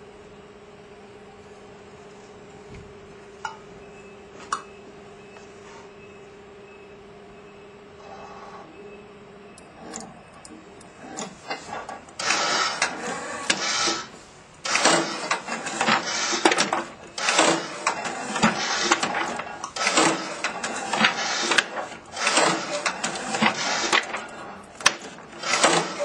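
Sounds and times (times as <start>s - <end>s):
loud mechanical clattering: 9.8s - 26.0s.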